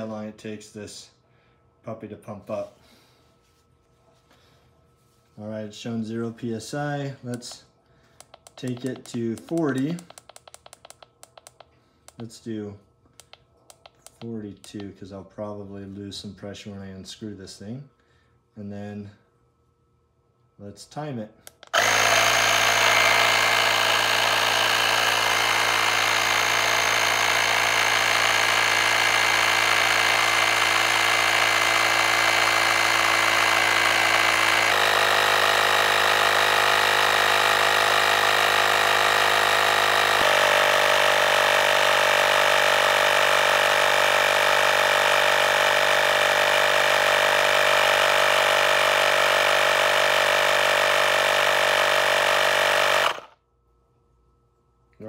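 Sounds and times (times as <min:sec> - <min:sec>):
portable air compressor running: 0:06.9 - 0:12.3, 0:21.5 - 0:53.4.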